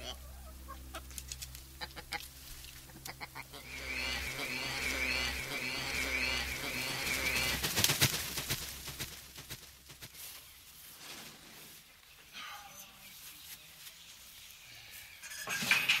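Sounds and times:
chickens calling: 0.0s - 12.3s
low steady hum: 0.0s - 16.0s
rapid repeated bird call: 2.9s - 9.1s.

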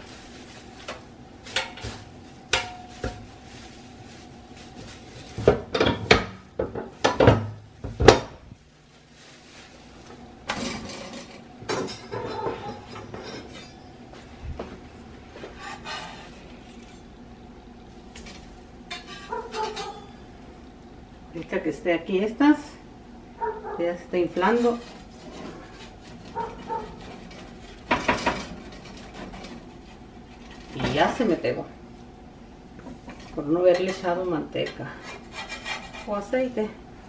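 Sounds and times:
utensils and dishes clinking: 10.5s - 14.1s, 18.2s - 20.3s.

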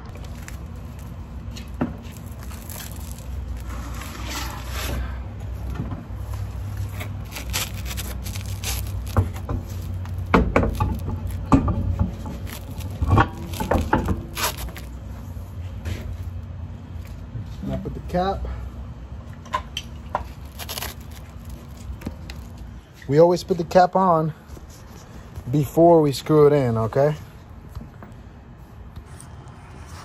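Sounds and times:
wheel scraping and handling: 0.0s - 16.4s, 20.1s - 23.1s.

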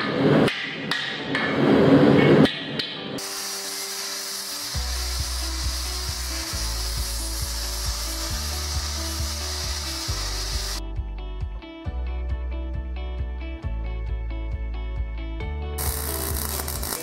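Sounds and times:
angle grinder grinding steel: 3.2s - 10.8s, 15.8s - 17.0s
background music bass: 4.3s - 17.0s.

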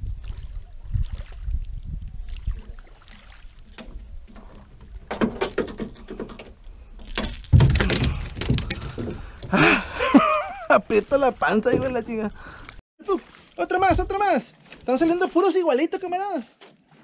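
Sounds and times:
clattering knocks and rattles in boat: 3.7s - 12.8s, 13.8s - 15.0s.

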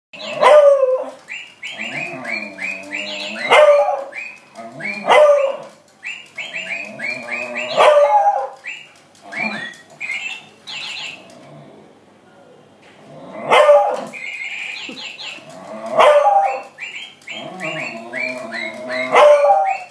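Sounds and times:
dog barking and baying: 0.2s - 5.8s, 6.5s - 8.6s, 13.4s - 14.2s, 15.7s - 16.8s, 17.4s - 19.9s
toy parrot chirping: 1.2s - 11.4s, 14.1s - 19.9s.

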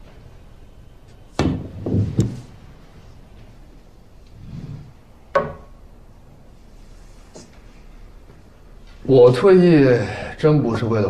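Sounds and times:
cue and balls clacking: 5.3s - 5.7s.

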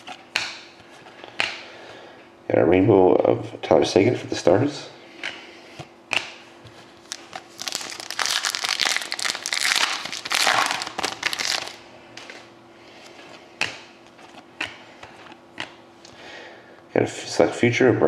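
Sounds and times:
foil wrapper crinkling: 7.0s - 12.5s.

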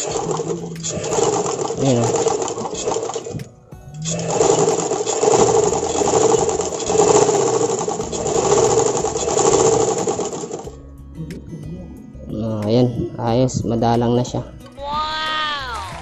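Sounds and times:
sewing machine stitching: 0.0s - 10.8s.

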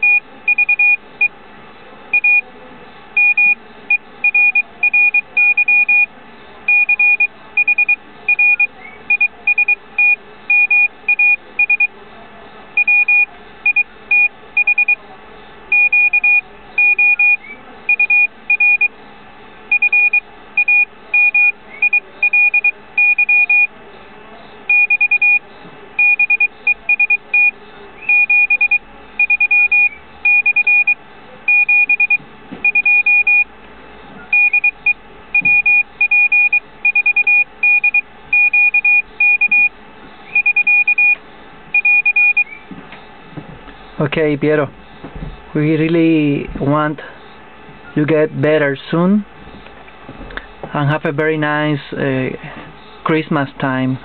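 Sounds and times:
morse code sidetone beeping: 0.0s - 1.3s, 2.1s - 2.4s, 3.2s - 6.1s, 6.7s - 11.9s, 12.8s - 15.0s, 15.7s - 18.9s, 19.7s - 23.7s, 24.7s - 25.4s, 26.0s - 33.5s, 34.3s - 42.6s.

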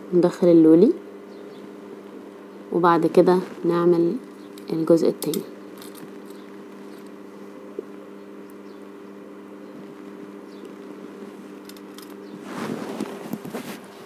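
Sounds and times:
steady low hum: 0.0s - 14.0s
rustle of small metal pieces: 5.3s - 7.2s, 10.8s - 13.9s.

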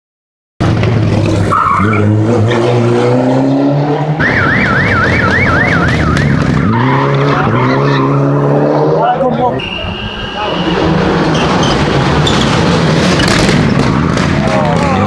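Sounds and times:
rally car engines revving: 0.6s - 15.0s
high warbling whistle: 9.6s - 11.4s.

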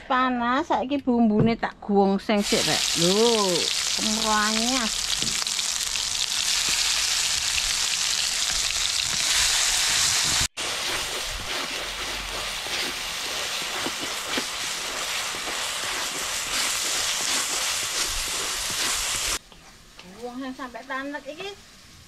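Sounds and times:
spice paste sizzling in a wok: 2.4s - 19.4s, 20.0s - 22.0s
spatula stirring: 10.4s - 19.4s.

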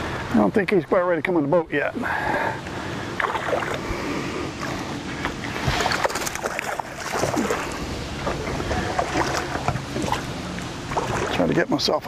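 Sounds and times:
fish thrashing and splashing in water: 3.2s - 3.9s, 5.5s - 11.6s.

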